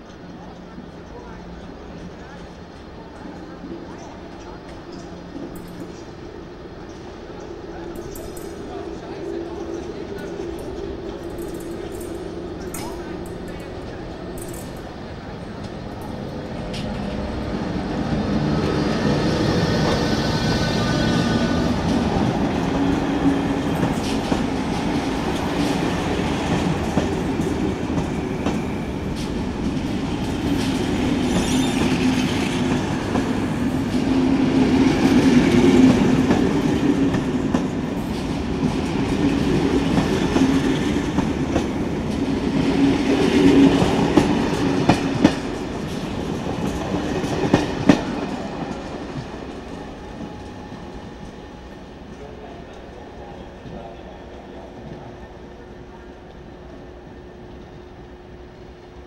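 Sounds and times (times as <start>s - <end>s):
train wheels rumbling on rail: 0.0s - 59.0s
wheels clacking over rail joints: 20.8s - 51.5s.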